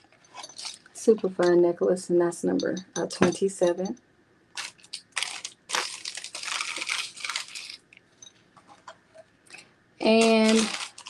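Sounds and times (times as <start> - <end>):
packaging crinkling and rustling: 0.0 - 1.0, 4.5 - 8.0, 10.0 - 11.0.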